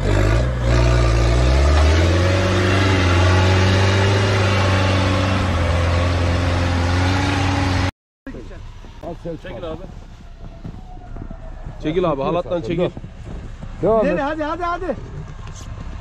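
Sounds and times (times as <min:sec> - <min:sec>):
pickup engine revving: 0:00.0 - 0:07.9.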